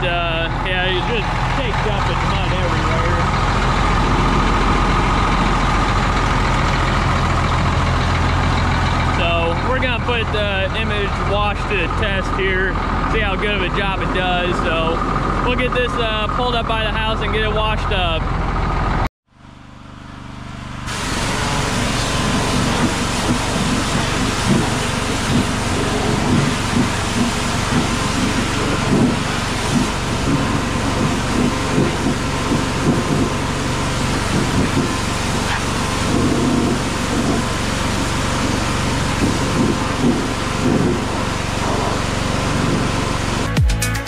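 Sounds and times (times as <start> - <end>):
engine humming: 0.0 - 44.0
pressure washer spray hissing: 20.9 - 43.5.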